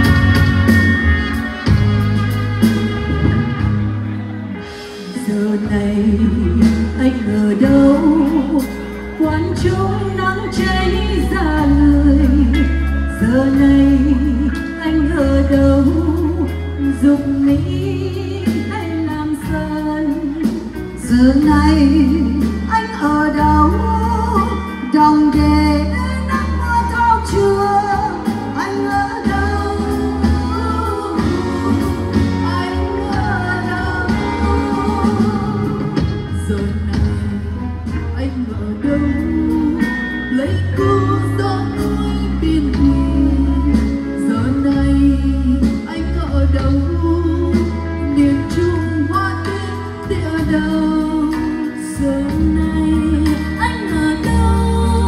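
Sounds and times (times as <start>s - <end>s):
drum kit: 0.0s - 55.0s
live band playing ballad: 0.0s - 55.0s
steady bass line: 0.0s - 55.0s
woman singing with vibrato: 0.0s - 55.0s.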